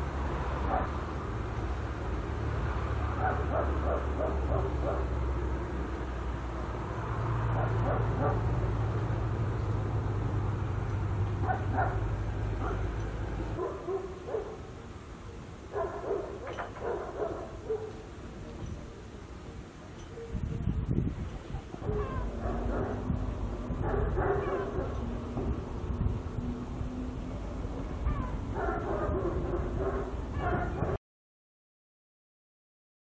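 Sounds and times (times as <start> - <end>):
dog barking: 0.7 - 0.9, 3.2 - 5.1, 7.6 - 8.4, 11.4 - 12.9, 13.6 - 14.7, 15.7 - 18.0, 21.8 - 23.0, 23.8 - 25.0, 28.2 - 31.0.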